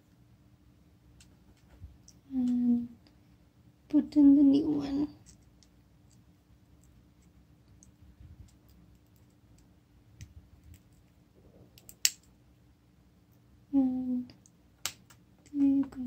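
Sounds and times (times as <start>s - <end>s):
person humming: 2.3s - 3.0s, 13.7s - 14.3s.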